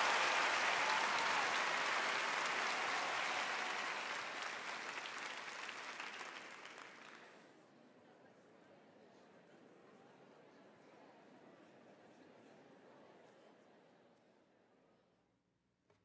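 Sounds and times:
audience applause: 0:00.0 - 0:07.3.

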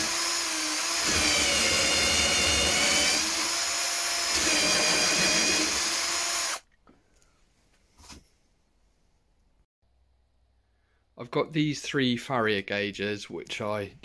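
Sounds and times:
cordless drill cutting with hole saw: 0:00.0 - 0:06.6.

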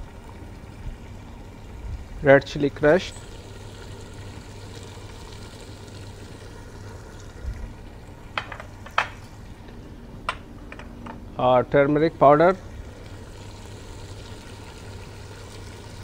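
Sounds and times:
sauce simmering and sizzling: 0:03.0 - 0:08.2, 0:12.6 - 0:16.0.

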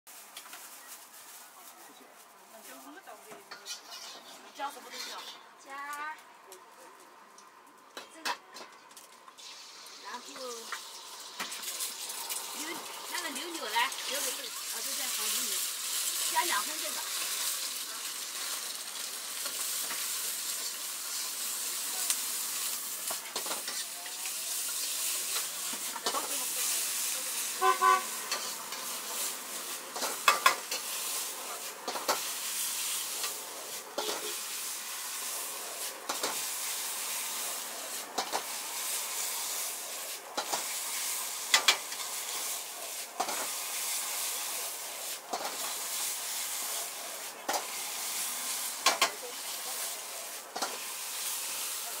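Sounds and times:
rice sizzling in a wok: 0:00.1 - 0:52.0
metal ladle scraping a wok: 0:03.5 - 0:05.6, 0:22.6 - 0:44.3.

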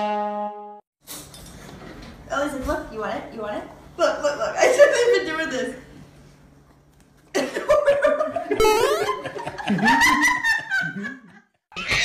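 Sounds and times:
pulsing laughter: 0:07.4 - 0:12.0.

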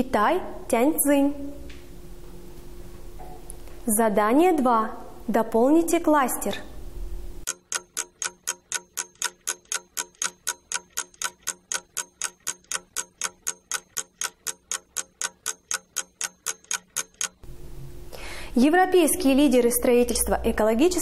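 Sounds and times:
clock ticking: 0:07.4 - 0:17.4.

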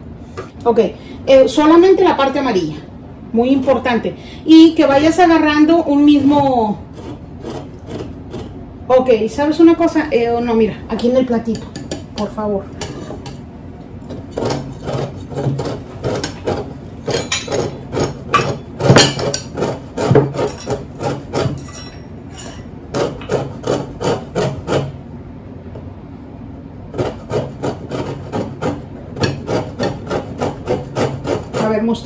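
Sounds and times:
grater scraping rind: 0:06.0 - 0:08.6, 0:14.0 - 0:25.0, 0:26.9 - 0:32.0.

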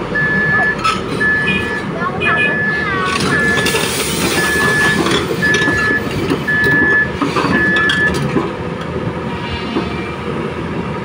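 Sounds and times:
heavy machine engines running: 0:00.0 - 0:11.0
machine warning alarm beeping: 0:00.1 - 0:08.2.

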